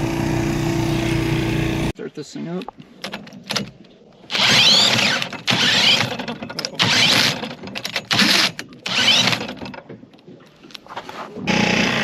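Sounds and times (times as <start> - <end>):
cordless drill whining: 4.3 - 6.1, 6.8 - 7.4, 8.1 - 9.5
engine turning over: 4.3 - 7.5.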